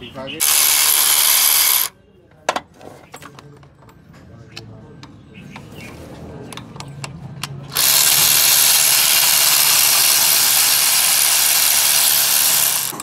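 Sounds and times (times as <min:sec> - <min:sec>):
electric ratchet motor running: 0:00.4 - 0:01.9, 0:07.7 - 0:13.0.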